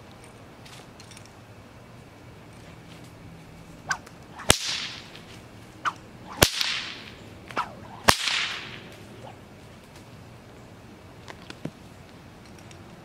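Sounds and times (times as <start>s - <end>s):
whip cracking: 3.8s - 9.4s
whip swishing through air: 3.8s - 9.4s.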